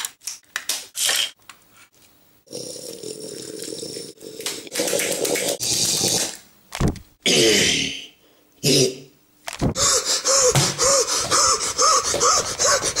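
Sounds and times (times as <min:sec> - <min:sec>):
person gasping and crying out: 0:09.7 - 0:13.0
person grunting rhythmically: 0:09.8 - 0:13.0.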